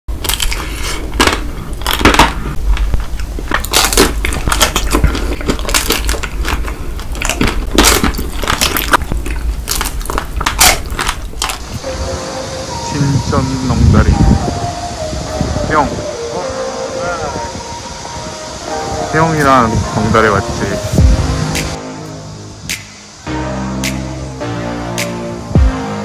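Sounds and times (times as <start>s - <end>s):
crunching of ice cream bars: 0.1s - 11.8s.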